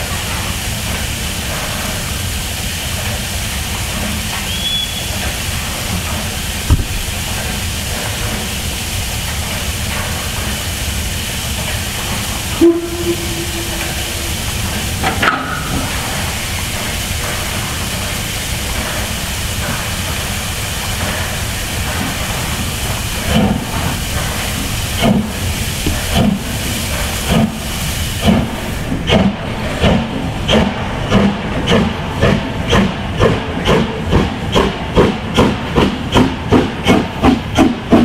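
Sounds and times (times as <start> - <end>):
steam hissing: 0.0 - 38.0
steam locomotive chuffing: 0.0 - 38.0
deep steam whistle: 4.4 - 5.2, 12.4 - 16.5.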